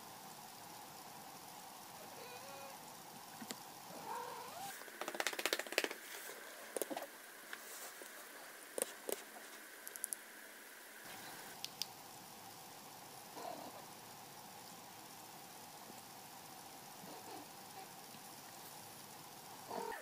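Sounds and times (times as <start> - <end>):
rapid clicks: 4.8 - 6.0.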